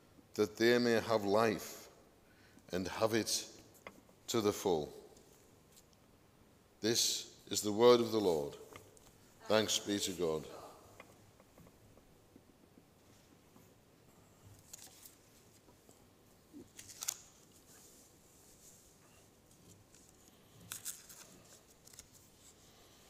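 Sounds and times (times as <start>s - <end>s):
paper rustling and clicks: 16.7s - 17.5s, 20.7s - 22.3s.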